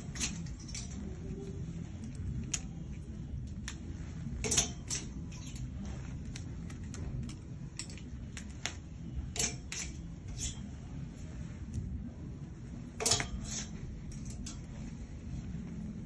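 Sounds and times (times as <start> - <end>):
clothes hangers clicking on metal rail: 0.0 - 10.8, 12.9 - 15.0
low background rumble: 0.0 - 16.0.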